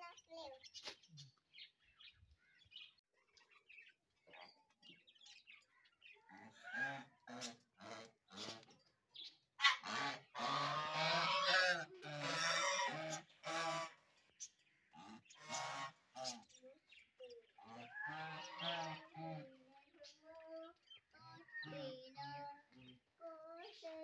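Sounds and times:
geese honking: 9.6s - 14.1s, 14.7s - 16.4s, 17.7s - 19.2s.

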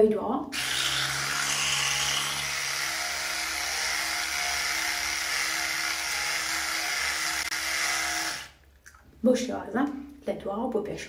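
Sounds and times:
electric toothbrush running: 0.6s - 8.6s.

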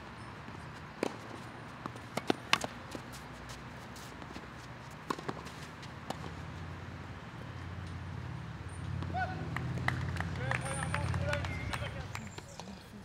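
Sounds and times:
tennis ball bouncing: 0.5s - 6.5s
rackets striking tennis ball: 1.0s - 3.2s, 4.2s - 6.5s.

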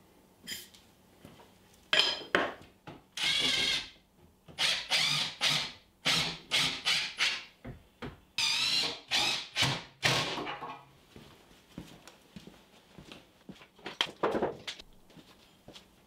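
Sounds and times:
cordless drill driving screws: 3.2s - 3.9s, 4.6s - 7.4s, 8.4s - 10.3s.

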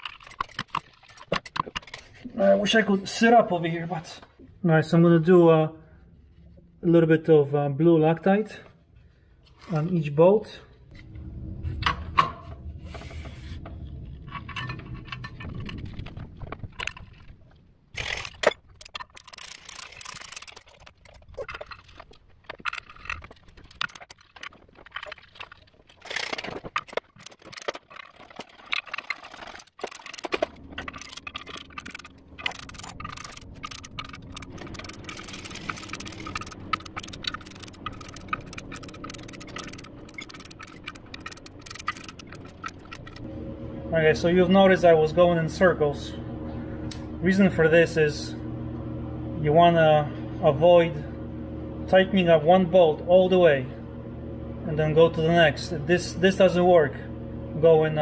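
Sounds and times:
hand wrench clicking and rattling: 18.0s - 43.2s.

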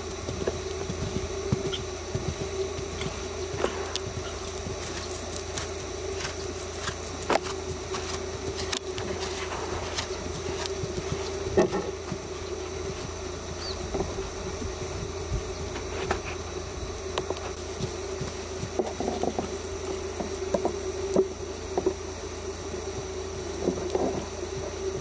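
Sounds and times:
hoofbeats on sand: 0.0s - 16.6s, 17.2s - 20.4s
steady buzz: 0.0s - 25.0s.

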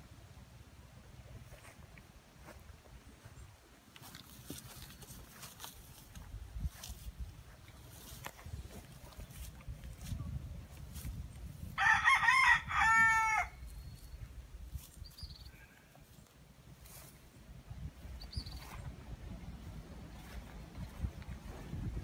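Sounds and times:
rooster crowing: 11.8s - 13.6s.

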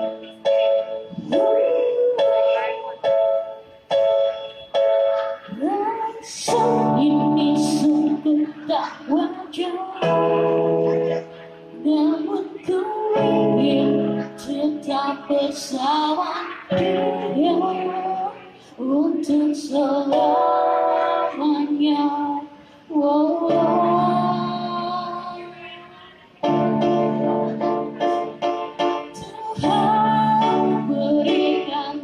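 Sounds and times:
electronic keyboard chords: 0.0s - 32.0s
woman singing a ballad: 1.2s - 3.1s, 5.5s - 10.5s, 11.8s - 26.0s, 29.1s - 32.0s.

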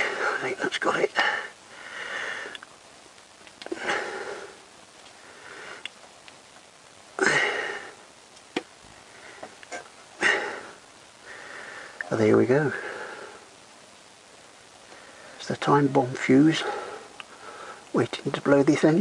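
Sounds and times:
man sniffing and breathing: 1.2s - 2.6s
small sharp clicks: 2.5s - 3.7s.

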